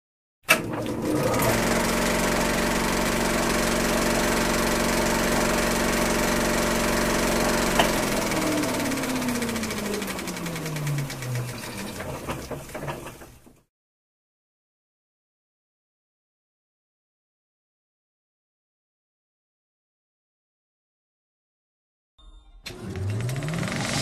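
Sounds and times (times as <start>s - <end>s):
film projector running: 0.5s - 13.5s, 22.7s - 24.0s.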